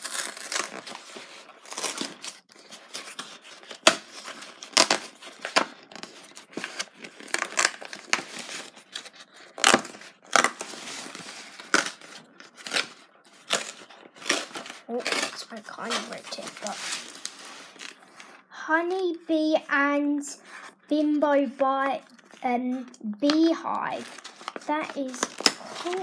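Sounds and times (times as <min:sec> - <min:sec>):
card packaging tearing: 0:00.0 - 0:18.0, 0:24.0 - 0:26.0
card rustling: 0:00.0 - 0:18.4, 0:22.0 - 0:26.0.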